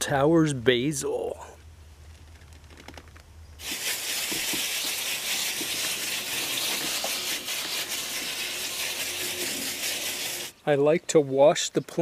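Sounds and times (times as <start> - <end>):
hose nozzle spraying water on leaves: 3.6 - 10.5.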